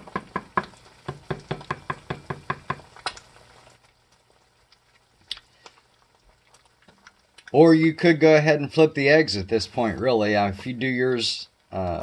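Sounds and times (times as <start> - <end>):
spatula knocking on skillet: 0.0 - 2.9.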